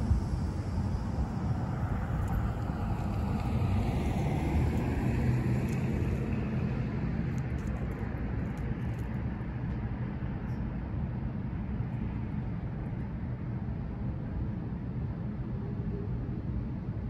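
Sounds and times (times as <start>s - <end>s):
low traffic rumble: 0.0s - 17.0s
car driving past: 2.3s - 7.3s.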